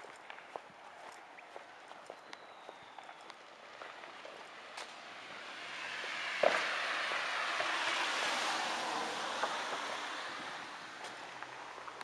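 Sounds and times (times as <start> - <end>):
vehicle passing by: 3.6 - 12.0.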